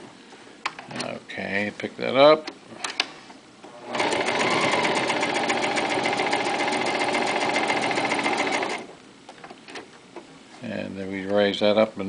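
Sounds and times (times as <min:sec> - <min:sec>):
sewing machine stitching: 0:03.7 - 0:08.9.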